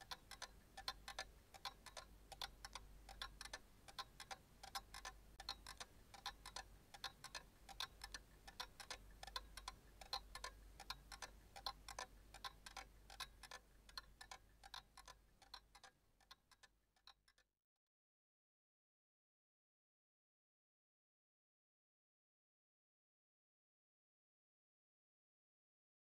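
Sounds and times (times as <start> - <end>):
clock ticking: 0.0 - 17.4.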